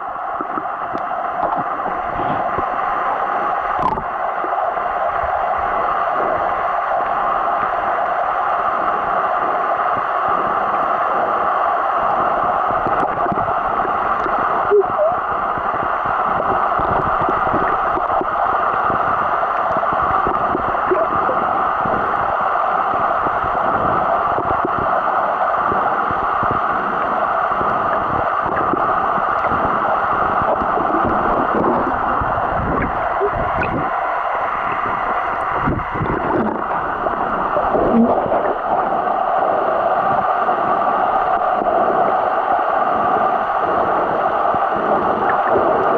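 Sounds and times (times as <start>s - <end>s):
muffled underwater rush: 0.0s - 45.9s
small gurgles and pops: 0.4s - 2.6s, 3.8s - 4.1s, 20.9s - 21.4s, 32.6s - 33.9s, 34.6s - 38.6s.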